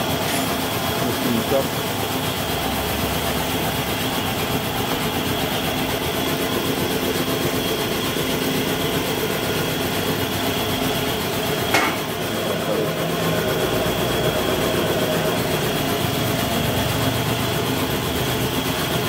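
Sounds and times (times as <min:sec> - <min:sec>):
motor running: 0:00.0 - 0:19.0
sharp knock: 0:11.7 - 0:12.1.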